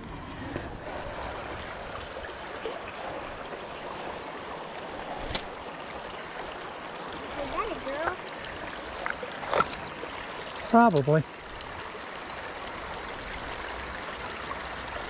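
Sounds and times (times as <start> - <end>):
stream water rushing: 0.0 - 15.0.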